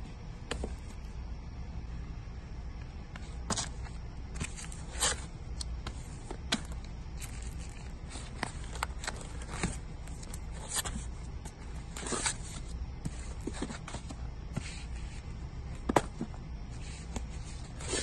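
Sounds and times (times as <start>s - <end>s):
steady low hum: 0.0s - 18.0s
record sleeves flipped by hand: 3.1s - 15.0s.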